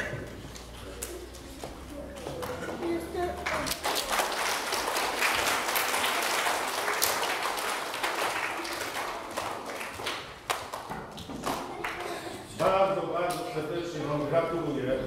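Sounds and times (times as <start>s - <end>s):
audience applauding: 3.4s - 12.2s.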